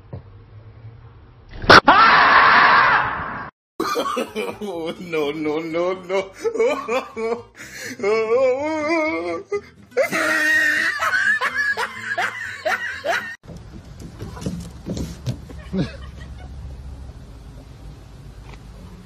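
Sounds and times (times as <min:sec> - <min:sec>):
person laughing: 0:03.8 - 0:13.4, 0:15.5 - 0:16.6.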